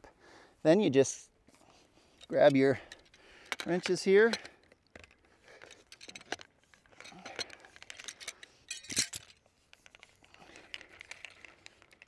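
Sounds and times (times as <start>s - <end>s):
metal tools clinking on pipe: 2.2s - 9.4s.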